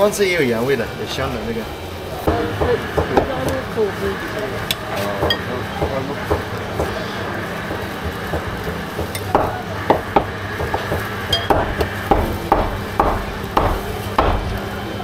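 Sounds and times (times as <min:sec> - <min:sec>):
steady low hum: 0:00.0 - 0:15.0
metal spoons clinking on bowls: 0:11.3 - 0:11.6.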